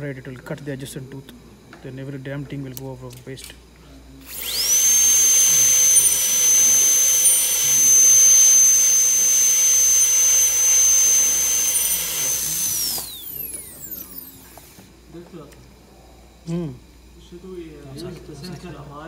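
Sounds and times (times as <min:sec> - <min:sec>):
dental drill whining: 0:04.2 - 0:14.9.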